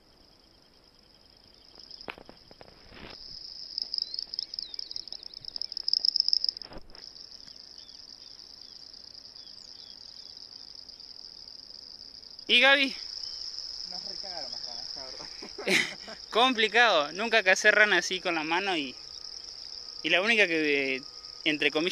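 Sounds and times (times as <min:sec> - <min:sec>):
frogs trilling: 0:00.0 - 0:21.9
frogs chirping quickly: 0:00.4 - 0:21.9
grass rustling: 0:01.7 - 0:10.2.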